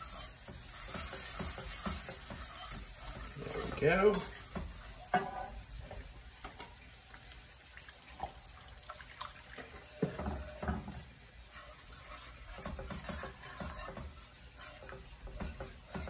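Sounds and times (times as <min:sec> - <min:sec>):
whisk knocking on pan: 0:00.0 - 0:06.6, 0:10.0 - 0:16.0
whisk scraping iron skillet: 0:00.0 - 0:06.7, 0:09.6 - 0:16.0.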